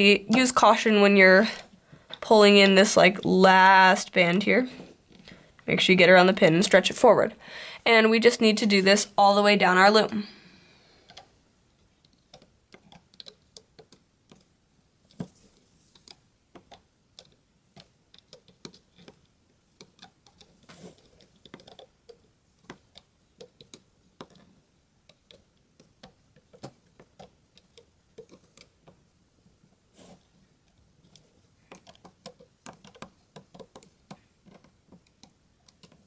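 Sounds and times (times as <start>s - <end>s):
plastic clicks and taps: 30.6s - 36.0s.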